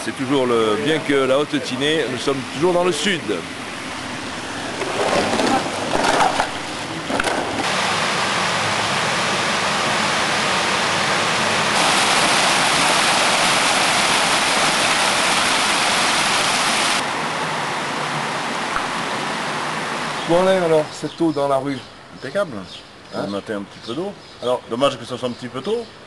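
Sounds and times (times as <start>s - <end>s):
broom scraping wet paving: 4.4s - 7.7s
water rushing down stone steps: 11.6s - 17.0s.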